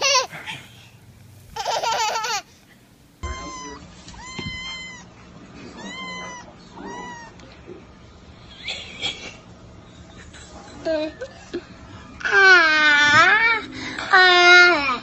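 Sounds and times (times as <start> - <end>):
kitten meowing: 3.2 - 5.1, 5.8 - 7.4.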